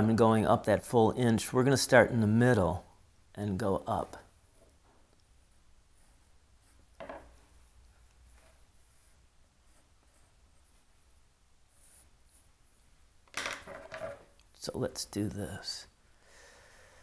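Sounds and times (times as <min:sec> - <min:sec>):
pencil drawing on paper: 0:05.9 - 0:06.9, 0:08.3 - 0:12.9.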